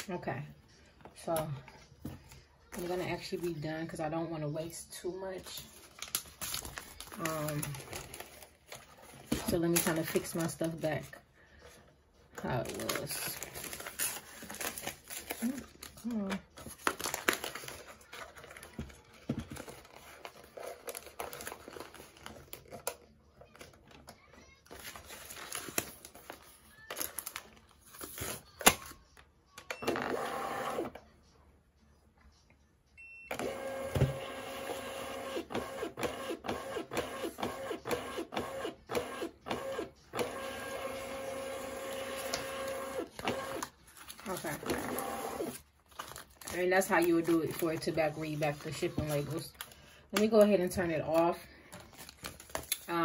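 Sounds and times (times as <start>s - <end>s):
paper rustling and crinkling: 5.4s - 29.0s, 43.1s - 53.0s
label printer feed motor running: 33.4s - 43.6s.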